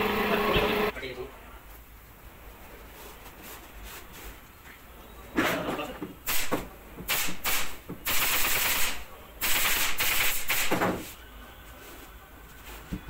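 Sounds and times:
pneumatic staple gun firing: 0:06.3 - 0:10.8.

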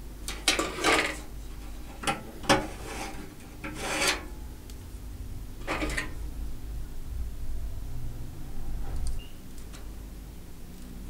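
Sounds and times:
metal scraping on metal: 0:00.3 - 0:04.5, 0:05.6 - 0:06.2.

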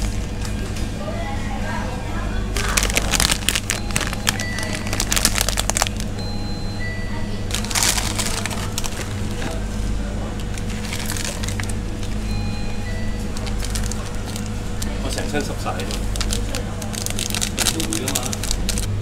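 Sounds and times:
steady low hum: 0:00.0 - 0:19.0
plastic packet crinkling and tearing: 0:02.6 - 0:06.1, 0:07.5 - 0:09.4, 0:10.5 - 0:11.8, 0:13.3 - 0:18.9.

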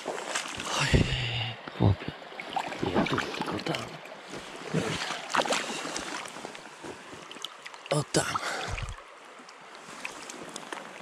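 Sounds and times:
boots splashing through water: 0:00.0 - 0:01.3, 0:02.0 - 0:09.0.

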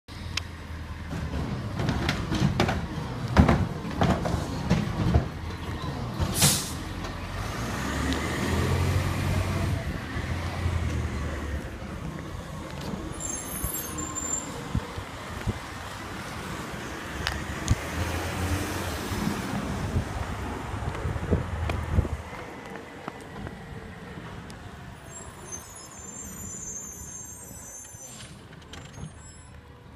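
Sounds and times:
air brake hiss: 0:06.3 - 0:06.9.

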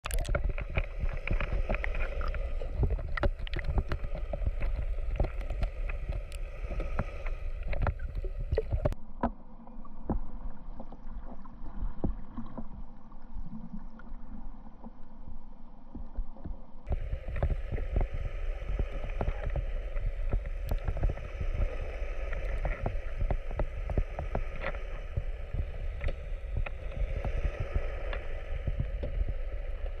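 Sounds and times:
small crackles: 0:00.0 - 0:09.0, 0:15.9 - 0:30.0
water sloshing and gurgling: 0:00.0 - 0:30.0
low rumble: 0:16.9 - 0:30.0.

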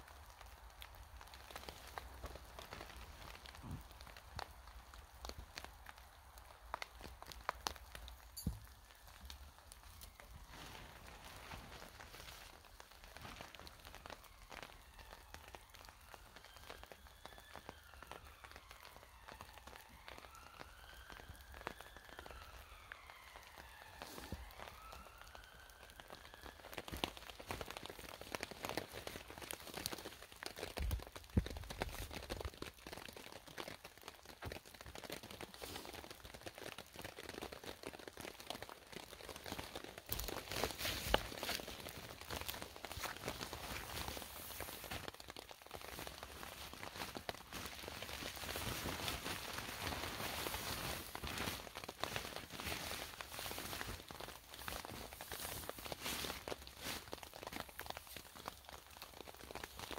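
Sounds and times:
water dripping on ground and tarp: 0:00.0 - 0:59.9
gliding whistled notes: 0:14.0 - 0:27.0.

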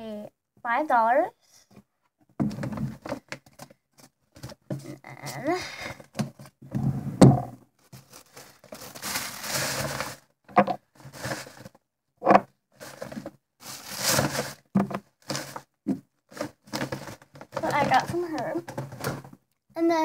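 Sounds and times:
loud thump: 0:06.7 - 0:07.6
paper bag rustling and crinkling: 0:07.8 - 0:11.8, 0:12.8 - 0:15.7, 0:16.3 - 0:19.4.

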